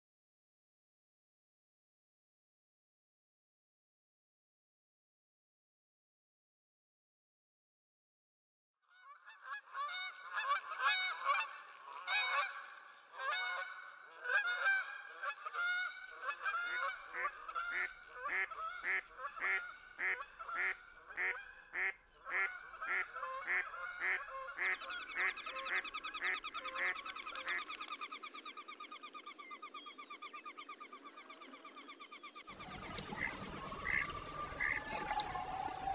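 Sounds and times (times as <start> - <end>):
swans honking: 9.1 - 28.1, 32.5 - 35.9
rapidly pulsing bird call: 16.8 - 35.9.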